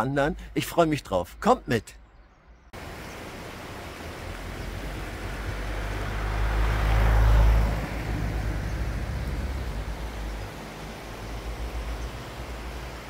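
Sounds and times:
car passing by: 0:02.8 - 0:13.0.

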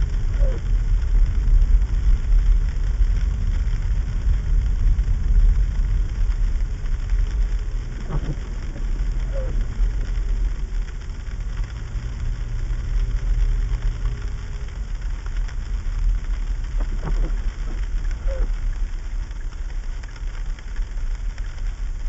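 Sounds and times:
windshield wiper sweeping: 0:00.0 - 0:00.7, 0:04.4 - 0:22.0
car rumbling over sleet: 0:00.0 - 0:22.0.

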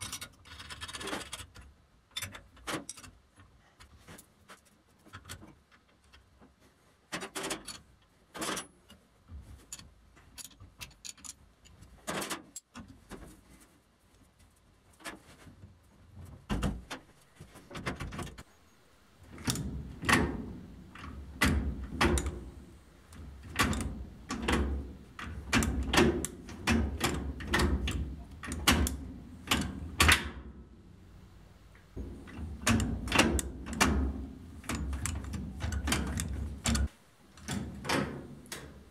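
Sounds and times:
low steady hum: 0:18.4 - 0:38.9
metal parts clanking: 0:19.2 - 0:30.3, 0:31.8 - 0:38.9.

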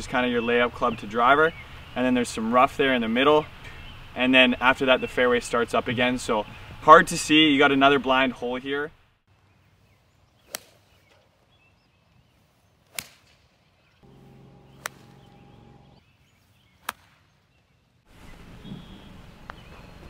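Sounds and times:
golf club striking ball: 0:12.9 - 0:13.3, 0:14.0 - 0:16.0
steady hum: 0:14.0 - 0:16.0.

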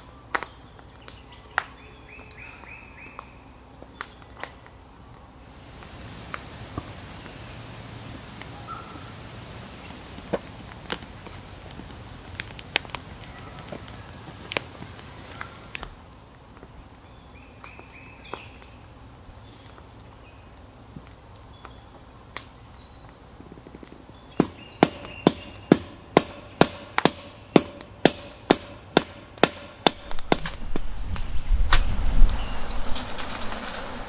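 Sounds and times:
hammer blows on metal: 0:24.4 - 0:31.0.

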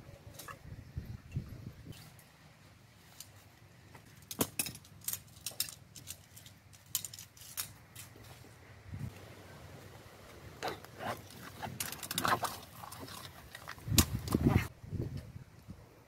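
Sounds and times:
tent pole sections clacking: 0:00.1 - 0:02.4, 0:03.0 - 0:08.6, 0:10.6 - 0:14.7.

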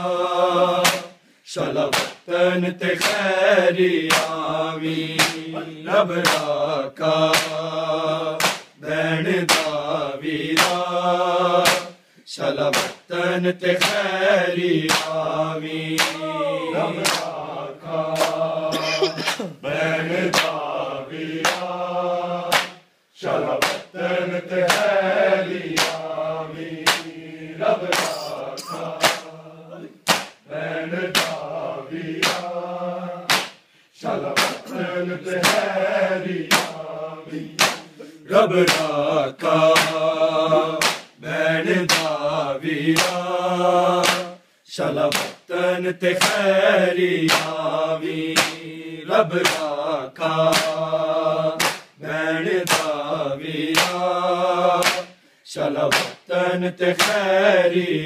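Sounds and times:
men chanting in unison: 0:00.0 - 0:58.0
hands slapping chests: 0:00.8 - 0:01.2, 0:01.9 - 0:02.3, 0:03.0 - 0:03.2, 0:04.0 - 0:04.4, 0:05.2 - 0:05.5, 0:06.2 - 0:06.5, 0:07.3 - 0:07.6, 0:08.4 - 0:08.8, 0:09.5 - 0:09.8, 0:10.6 - 0:10.8, 0:11.6 - 0:12.0, 0:12.7 - 0:13.1, 0:13.8 - 0:14.1, 0:14.8 - 0:15.2, 0:16.0 - 0:16.2, 0:17.0 - 0:17.4, 0:18.2 - 0:18.4, 0:19.2 - 0:19.6, 0:20.3 - 0:20.6, 0:21.4 - 0:21.7, 0:22.5 - 0:22.8, 0:23.6 - 0:23.9, 0:24.6 - 0:24.9, 0:25.7 - 0:26.0, 0:26.8 - 0:27.1, 0:27.8 - 0:29.3, 0:30.0 - 0:30.4, 0:31.1 - 0:31.5, 0:32.2 - 0:32.5, 0:33.3 - 0:35.7, 0:36.4 - 0:36.8, 0:37.5 - 0:38.0, 0:38.6 - 0:39.0, 0:39.7 - 0:41.2, 0:41.9 - 0:42.2, 0:43.0 - 0:43.2, 0:44.0 - 0:44.3, 0:45.0 - 0:45.4, 0:46.2 - 0:46.4, 0:47.3 - 0:47.6, 0:48.4 - 0:48.6, 0:49.4 - 0:49.7, 0:50.5 - 0:50.8, 0:51.6 - 0:52.0, 0:52.6 - 0:53.0, 0:53.7 - 0:54.0, 0:54.8 - 0:55.2, 0:55.8 - 0:56.2, 0:57.0 - 0:57.2.

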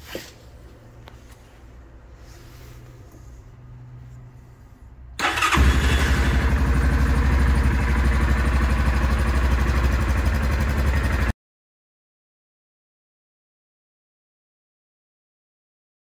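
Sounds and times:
engine idling: 0:02.4 - 0:11.3
electric starter cranking: 0:05.2 - 0:06.6.

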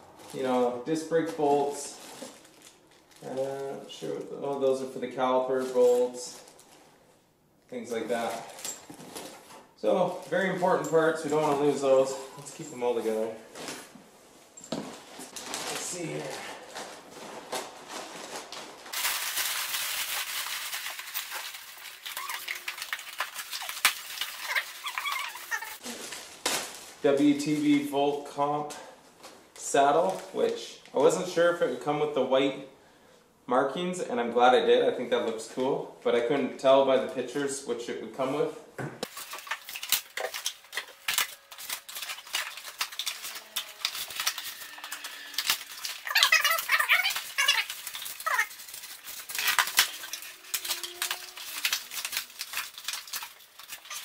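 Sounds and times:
plastic wrap crinkling: 0:00.0 - 0:07.0, 0:07.7 - 0:14.0, 0:14.7 - 0:28.3, 0:39.0 - 0:54.0.

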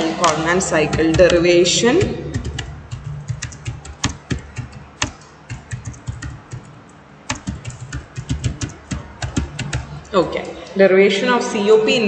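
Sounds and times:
keyboard keystroke clicks: 0:02.3 - 0:06.7, 0:07.3 - 0:09.9.

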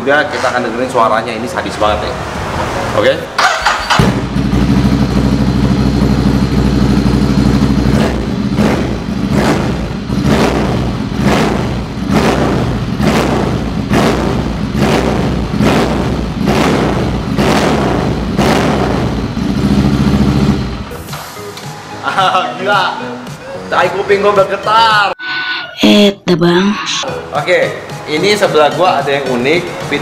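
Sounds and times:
motorcycle engine idling and revving: 0:00.5 - 0:21.0.

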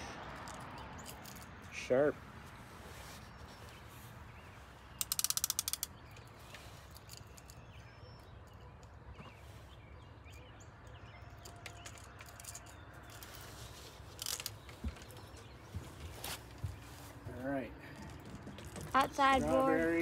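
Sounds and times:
fishing reel clicker ratcheting: 0:05.0 - 0:05.9
faint bird chirps: 0:05.8 - 0:18.0.

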